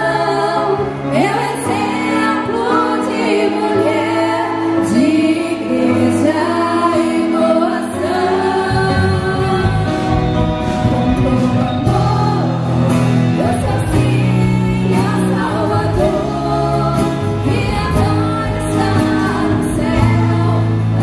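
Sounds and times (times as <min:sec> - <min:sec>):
women singing lead: 0:00.0 - 0:10.8, 0:11.6 - 0:21.0
pop-rock band playing: 0:00.0 - 0:21.0.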